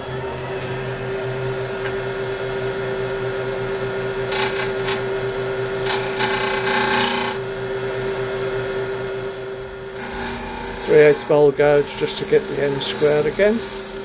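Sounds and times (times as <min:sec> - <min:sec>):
wood lathe humming: 0:00.0 - 0:14.0
gouge cutting spinning wood: 0:04.1 - 0:07.5, 0:09.9 - 0:14.0.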